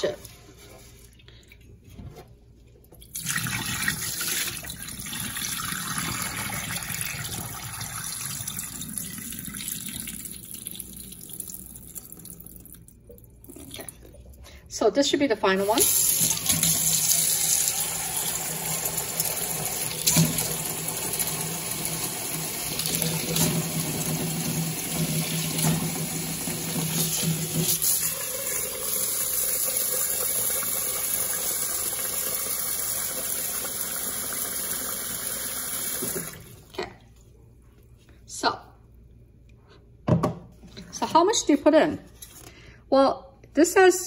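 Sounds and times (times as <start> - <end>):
tap water running into pot: 3.0 - 12.9, 15.8 - 36.6.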